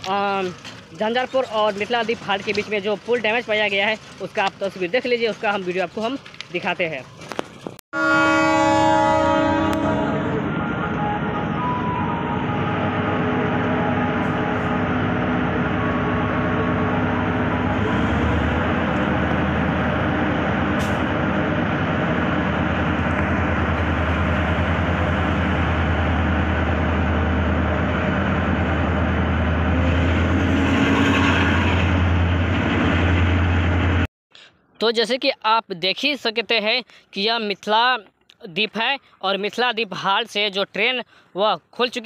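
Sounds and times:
train wheels rumbling: 0.0 - 7.8, 8.9 - 34.0.

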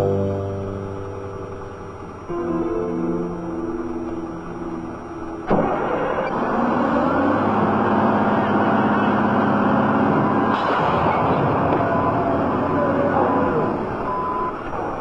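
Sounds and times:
music: 0.0 - 6.2
diesel engine starting and running: 0.0 - 15.0.

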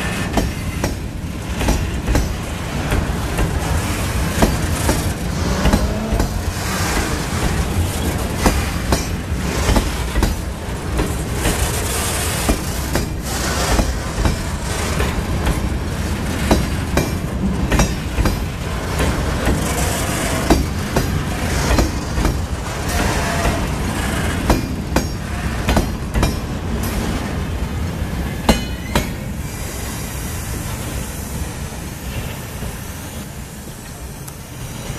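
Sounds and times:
freight train wheels clacking: 0.0 - 34.9.

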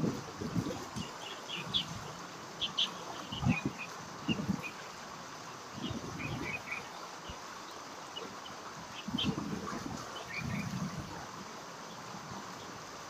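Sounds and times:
small birds chirping: 0.6 - 10.8.

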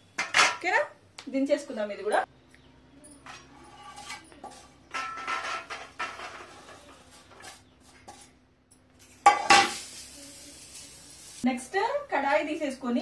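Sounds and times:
wooden spatula scraping pan: 3.3 - 8.4.

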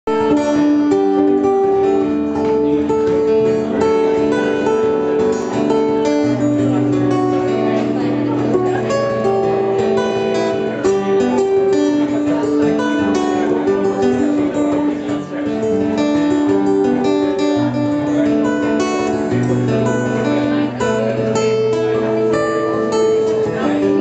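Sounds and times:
acoustic guitars strumming: 0.1 - 24.0
melody of long held notes: 0.1 - 24.0.

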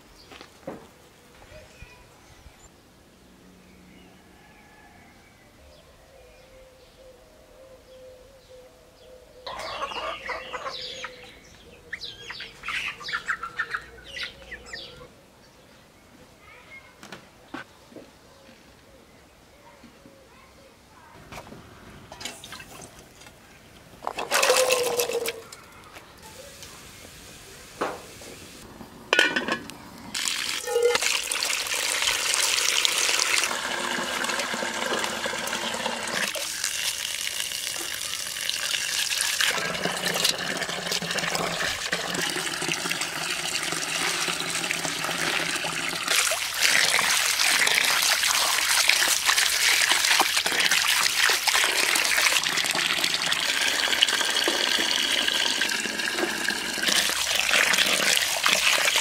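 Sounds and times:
metal pot clanking: 29.1 - 29.7
water running into a pot: 30.1 - 59.0.

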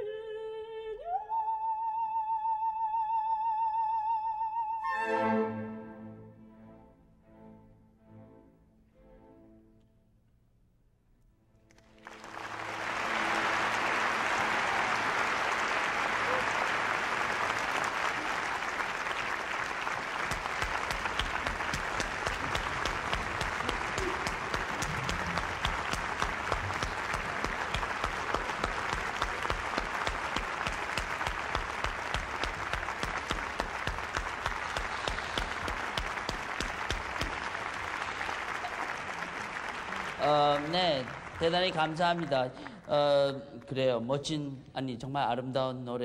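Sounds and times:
audience applauding: 11.7 - 43.4.

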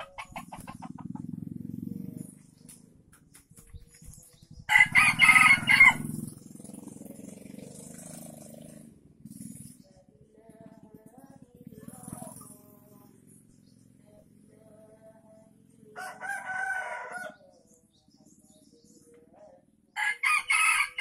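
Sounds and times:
rooster crowing: 4.7 - 6.2, 15.9 - 17.5, 20.0 - 21.0.

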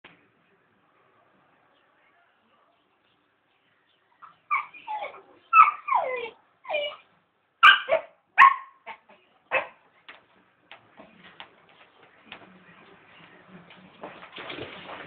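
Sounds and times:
puppy yipping and whining: 4.5 - 7.0, 7.6 - 8.8.

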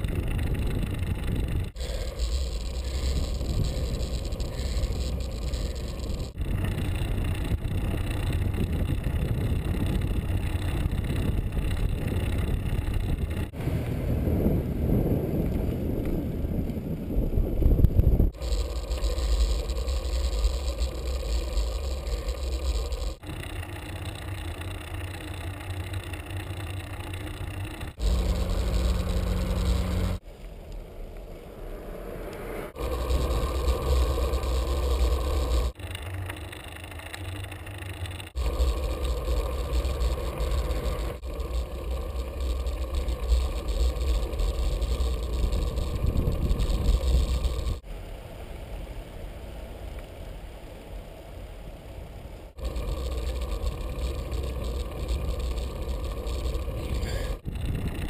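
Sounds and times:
wind buffeting microphone: 0.0 - 21.2, 38.4 - 47.8, 52.6 - 58.0
bicycle tyres on asphalt: 0.0 - 58.0
steady low hum: 0.0 - 58.0.

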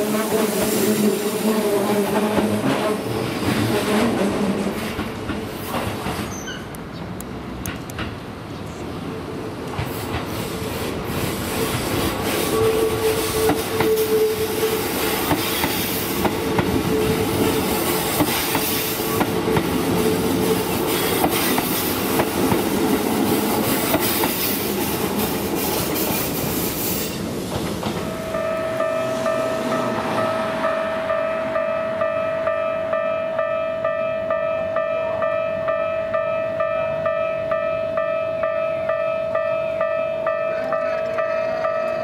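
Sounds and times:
train whine: 0.0 - 8.0, 8.7 - 42.0
train wheels clicking over rail joints: 2.4 - 8.3, 9.6 - 28.4.

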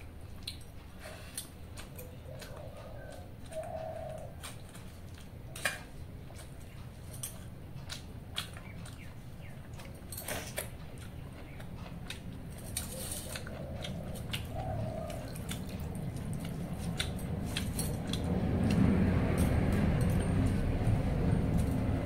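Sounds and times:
low rumble: 14.7 - 22.0.

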